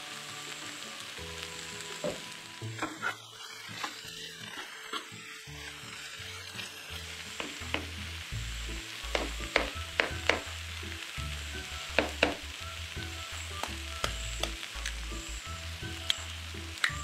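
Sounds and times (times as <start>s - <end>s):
vegetables sizzling in a frying pan: 0.0s - 17.0s
spatula scraping and tapping pan: 2.8s - 3.2s, 7.4s - 8.0s, 9.1s - 10.6s.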